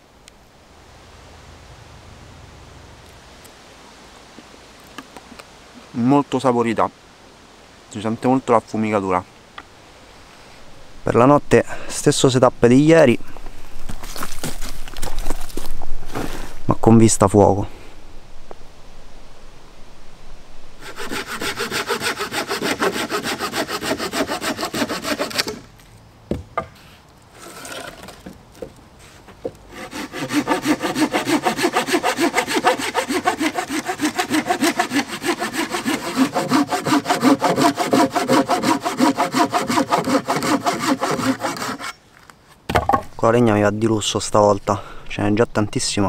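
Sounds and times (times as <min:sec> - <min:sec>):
hand saw cutting wood: 0:20.8 - 0:25.7, 0:27.4 - 0:28.2, 0:29.7 - 0:42.0.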